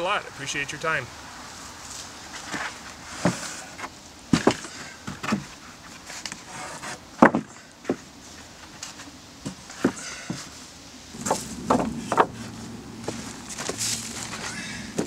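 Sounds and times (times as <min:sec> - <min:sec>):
wooden boards clunking: 0:06.6 - 0:08.0, 0:11.2 - 0:15.0.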